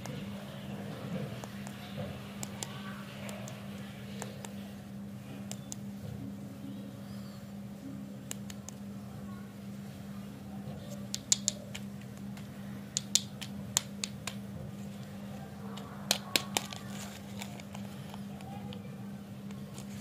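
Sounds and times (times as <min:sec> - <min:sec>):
plastic wrappers crinkling: 0:14.8 - 0:18.9.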